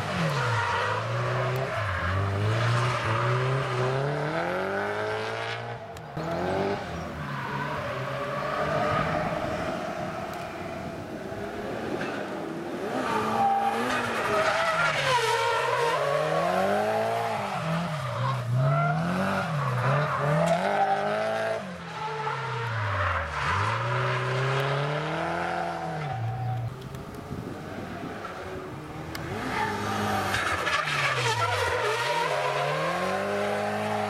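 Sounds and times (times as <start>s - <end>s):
car engine revving: 0.8s - 11.8s
tyre squeal: 29.4s - 34.0s.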